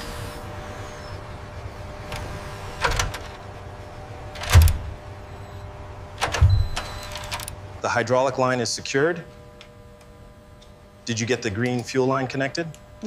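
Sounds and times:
machinery hum: 0.0s - 13.0s
mechanical clunks: 4.3s - 5.0s, 6.2s - 7.6s.

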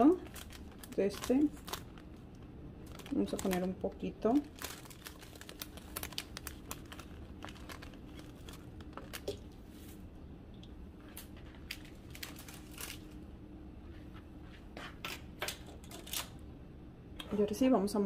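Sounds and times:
paper bag crinkling: 0.0s - 10.0s, 11.3s - 13.2s.

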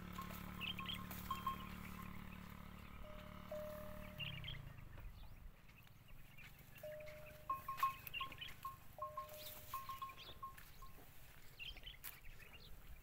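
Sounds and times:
neck bell clinking: 0.0s - 2.2s, 6.8s - 11.0s.

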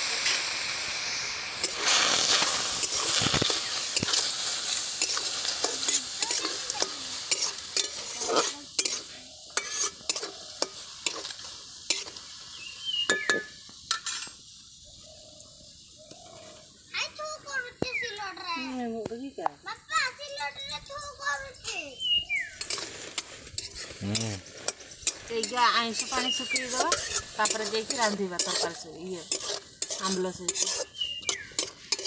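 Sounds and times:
meat sizzling in a pan: 0.0s - 19.0s, 19.9s - 32.0s
metal spatula scraping pan: 5.0s - 12.2s, 13.1s - 14.4s, 22.6s - 32.0s.

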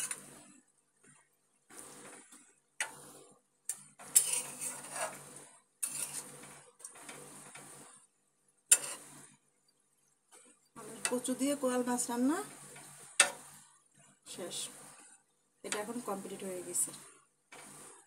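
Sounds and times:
spatula scraping metal pot: 3.9s - 7.7s, 8.7s - 9.3s.

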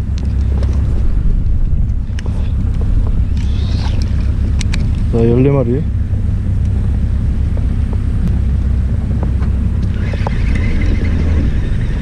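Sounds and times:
wind rumble on microphone: 0.0s - 12.0s
fishing reel whirring: 3.2s - 4.5s, 9.8s - 12.0s.

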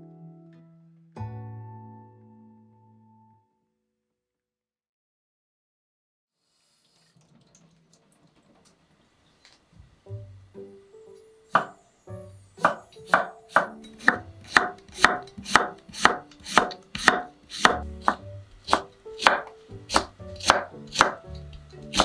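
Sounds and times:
knife slicing cucumber on board: 12.6s - 22.0s.

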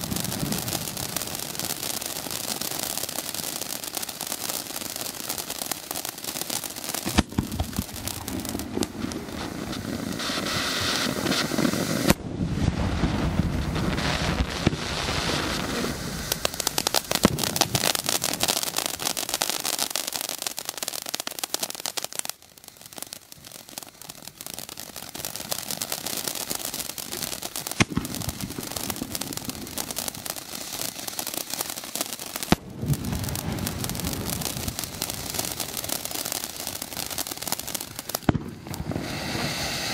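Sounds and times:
firework fountain hissing: 0.0s - 39.9s
firework pops: 6.5s - 19.2s, 22.9s - 39.9s.

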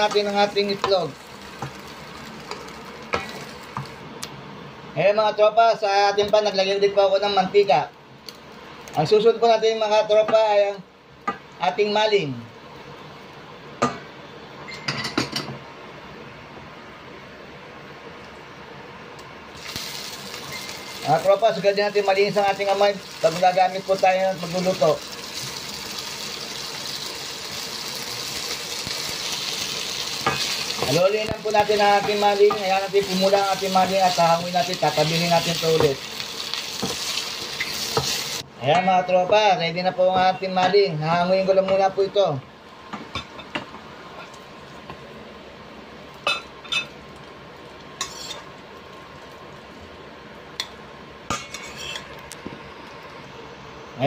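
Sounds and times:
meat sizzling in hot oil: 0.0s - 4.0s, 19.5s - 38.5s, 46.1s - 49.7s
steady background hiss: 0.0s - 54.0s.

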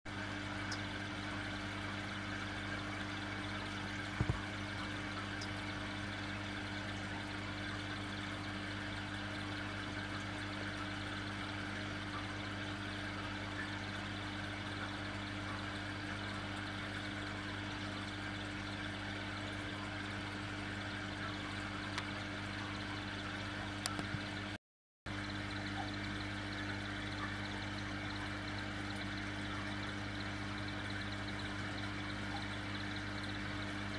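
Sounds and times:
aquarium pump humming: 0.1s - 33.9s
water trickling into tank: 0.1s - 33.9s.

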